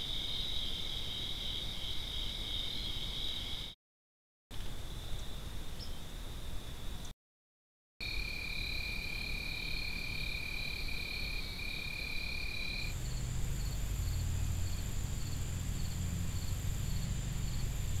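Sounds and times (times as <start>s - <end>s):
insects trilling: 8.0s - 18.0s
low hum: 12.8s - 18.0s.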